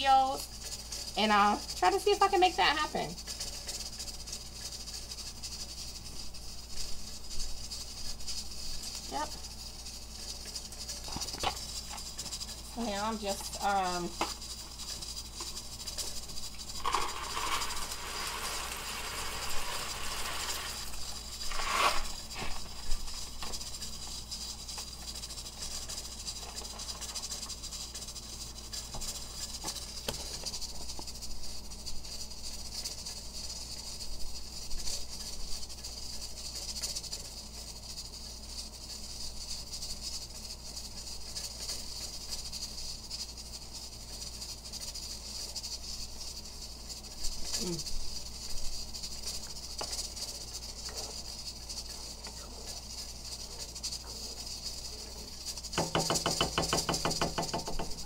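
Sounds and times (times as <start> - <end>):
pots hissing on gas stove: 0.0 - 58.0
rustling and handling noises: 6.1 - 31.6.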